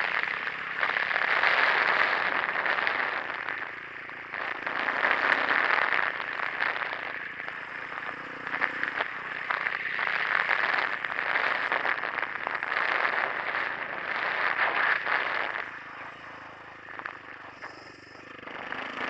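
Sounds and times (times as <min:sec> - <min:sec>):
faint motorcycle engine: 0:00.0 - 0:19.0
wind noise on microphone: 0:07.8 - 0:15.7.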